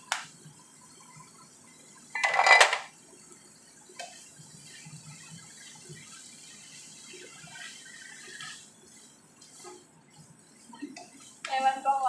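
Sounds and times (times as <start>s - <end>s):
spatula scraping a frying pan: 5.6s - 9.9s.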